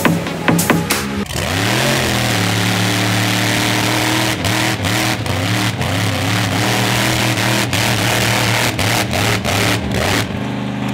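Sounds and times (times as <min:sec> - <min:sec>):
truck engine revving: 0:00.0 - 0:10.9.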